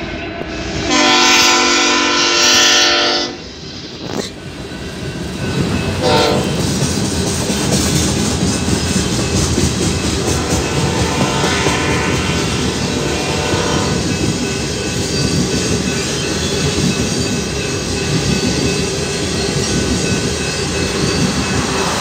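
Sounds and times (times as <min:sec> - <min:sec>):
train rumbling past: 0:00.0 - 0:22.0
locomotive air horn: 0:00.7 - 0:03.5, 0:06.0 - 0:06.6, 0:10.2 - 0:14.2
wheels clacking over rail joints: 0:05.2 - 0:22.0.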